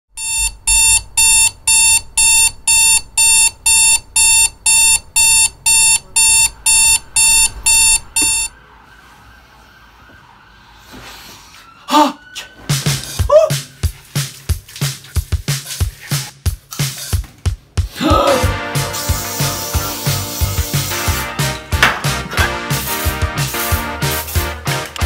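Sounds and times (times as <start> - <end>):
alarm clock beeping: 0.2 - 8.6.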